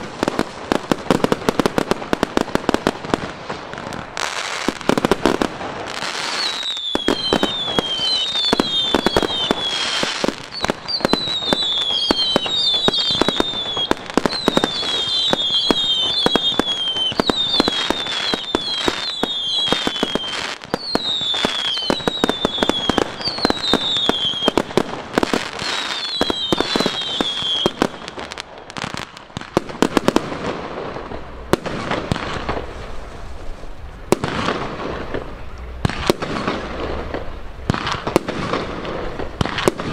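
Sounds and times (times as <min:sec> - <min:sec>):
fireworks bangs and crackle: 0:00.0 - 0:39.9
falling firework whistles: 0:04.1 - 0:29.0.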